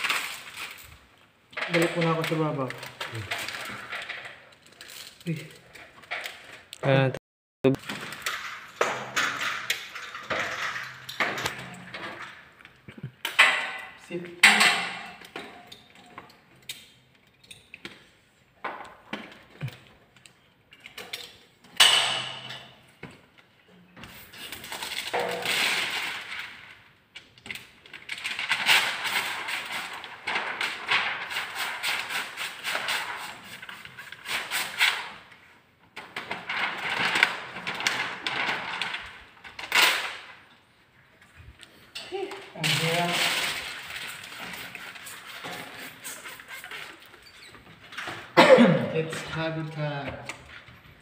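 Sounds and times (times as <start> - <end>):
spray bottle squirting: 31.3 - 35.0, 43.5 - 47.5.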